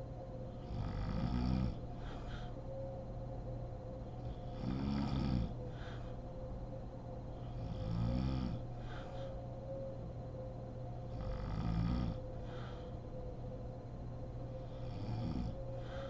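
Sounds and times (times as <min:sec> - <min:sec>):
woman snoring: 0:00.6 - 0:02.4, 0:04.2 - 0:06.1, 0:07.4 - 0:09.2, 0:11.1 - 0:12.8, 0:14.6 - 0:16.0.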